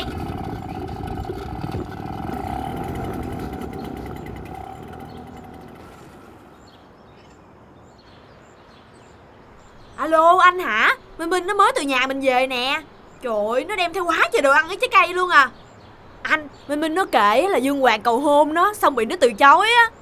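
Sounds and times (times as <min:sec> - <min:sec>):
vehicle engine running: 0:00.0 - 0:06.8.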